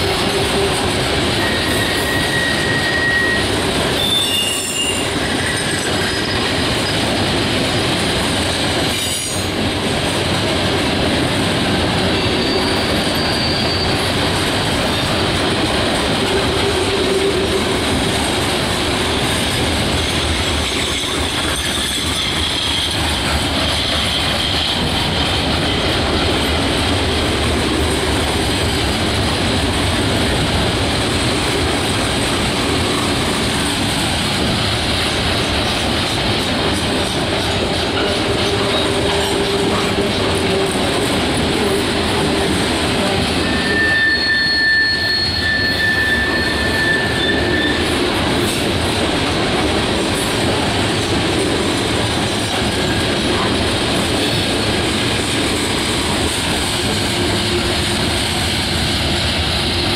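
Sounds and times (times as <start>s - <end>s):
train wheels rumbling on rail: 0.0s - 59.9s
wheel squeals: 1.3s - 7.0s, 12.1s - 14.3s, 43.3s - 48.0s.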